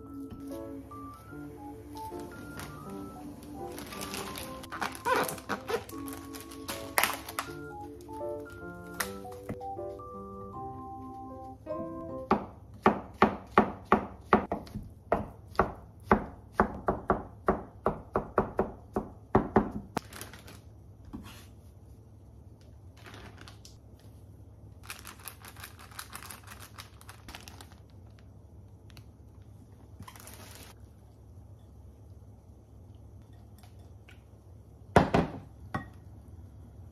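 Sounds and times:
plastic bags rustling: 0:01.9 - 0:09.5, 0:20.0 - 0:20.8, 0:22.9 - 0:24.2, 0:24.8 - 0:30.8
knife chopping on plastic board: 0:12.3 - 0:19.8.

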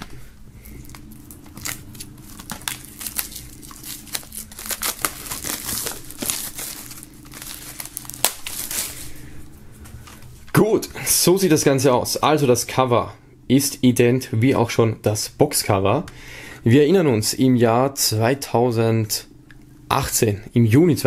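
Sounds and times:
plastic film crinkling and tearing: 0:00.8 - 0:09.2.

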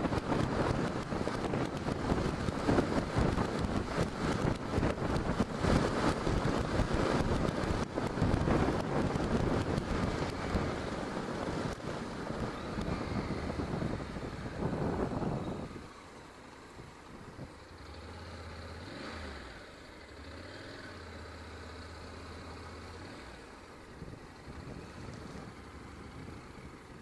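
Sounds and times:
wind buffeting microphone: 0:00.0 - 0:15.9, 0:23.9 - 0:27.0
motorcycle engine: 0:00.0 - 0:27.0
road noise: 0:00.0 - 0:27.0.

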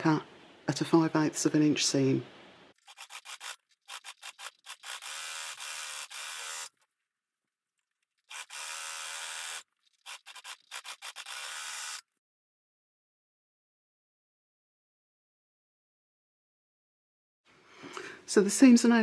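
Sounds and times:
overlocker sewing machine stitching: 0:02.8 - 0:06.8, 0:08.3 - 0:12.0.

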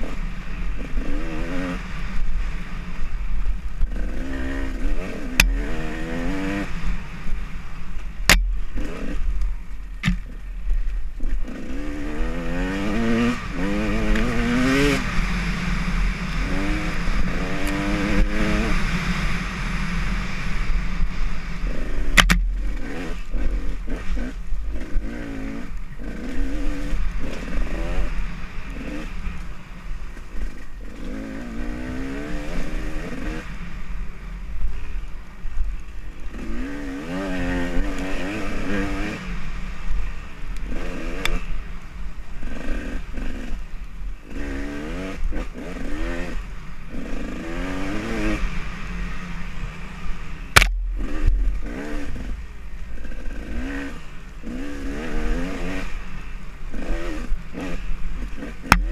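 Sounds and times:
dirt bike engine revving: 0:00.0 - 0:34.9, 0:36.1 - 0:58.9.

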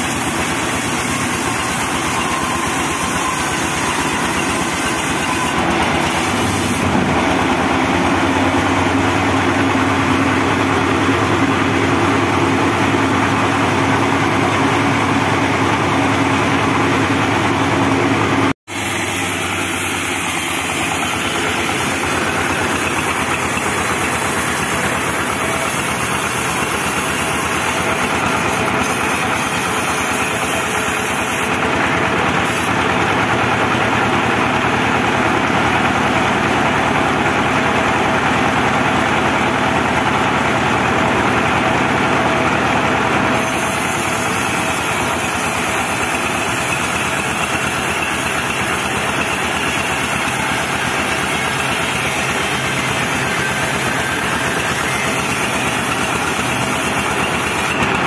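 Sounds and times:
band sawmill cutting a log: 0:00.0 - 0:58.0.

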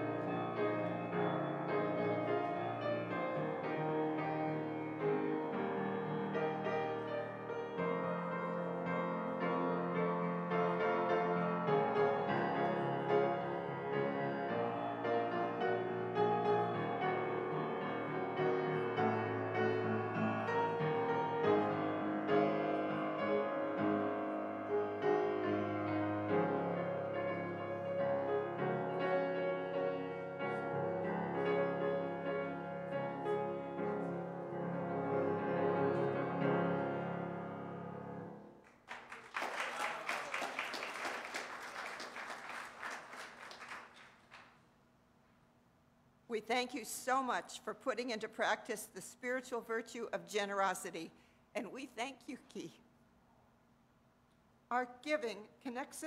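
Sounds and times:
solo grand piano chords: 0:00.0 - 0:38.6.

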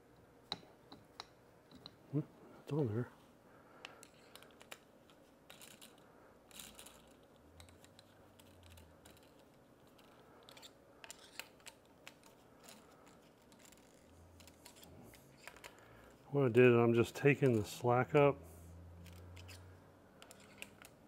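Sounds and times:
clicks and taps of tools: 0:00.1 - 0:02.0.

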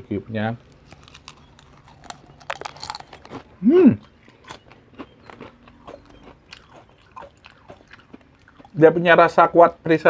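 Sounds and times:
chips crunching while chewed: 0:00.7 - 0:08.8
person humming: 0:03.6 - 0:04.0.

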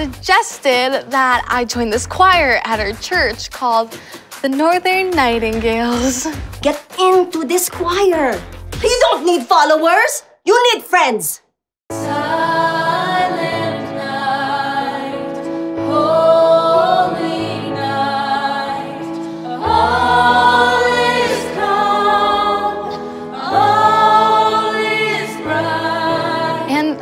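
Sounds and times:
youth choir singing in harmony: 0:11.9 - 0:27.0.

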